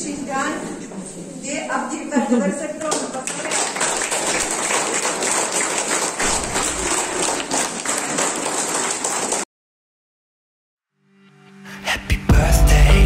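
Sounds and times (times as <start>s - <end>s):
crowd clapping: 2.9s - 9.5s.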